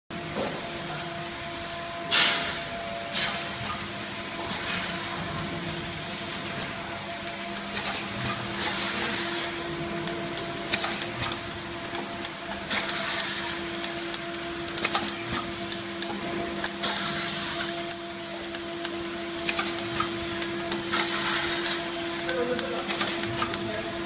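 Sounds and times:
machine motor hum: 0:00.1 - 0:24.0
machine parts clicking: 0:07.6 - 0:23.7.

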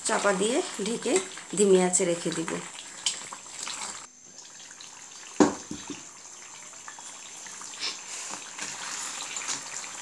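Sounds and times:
curry bubbling in a pot: 0:00.0 - 0:10.0.

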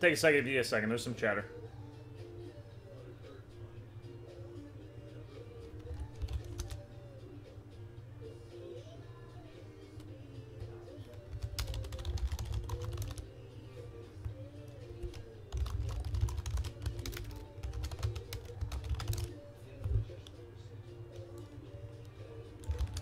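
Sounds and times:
soft background music: 0:00.0 - 0:23.0
typing on computer keyboard: 0:05.8 - 0:06.8, 0:11.1 - 0:13.2, 0:15.0 - 0:20.3, 0:22.6 - 0:23.0.

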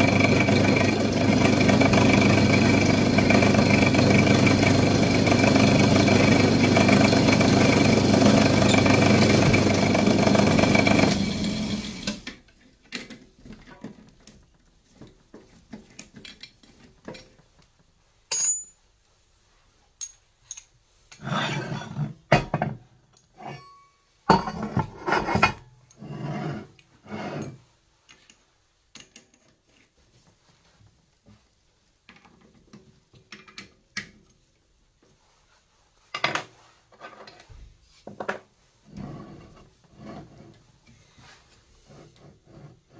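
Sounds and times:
pillar drill drilling steel: 0:00.1 - 0:12.2
metal clinks and knocks: 0:18.3 - 0:18.8.

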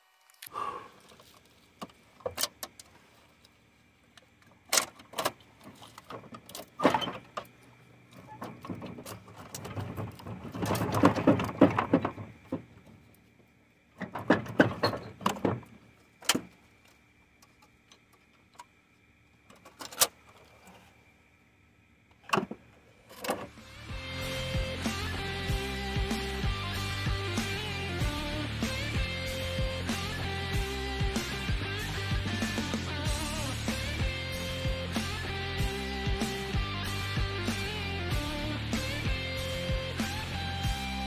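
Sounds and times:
metal engine parts clinking: 0:14.0 - 0:16.4.

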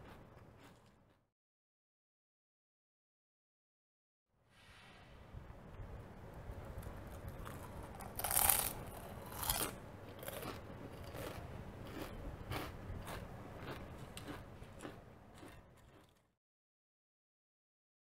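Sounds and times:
tortilla chips crunching: 0:07.1 - 0:16.3.

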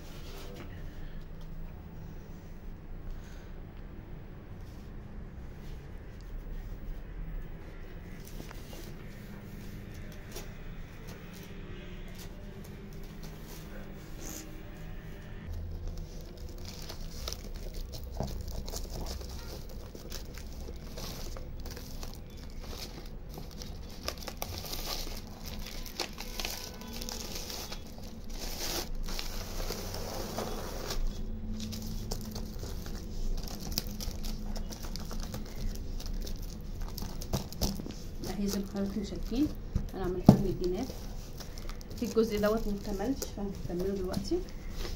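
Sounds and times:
plastic film crinkling: 0:15.4 - 0:44.9.

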